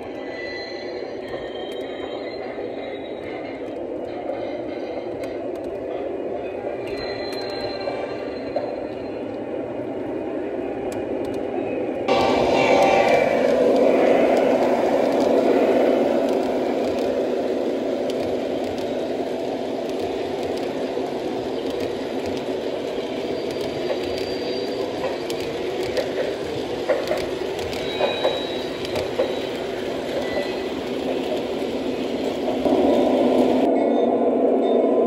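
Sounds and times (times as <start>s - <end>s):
model train wheels rumbling: 12.1s - 33.7s.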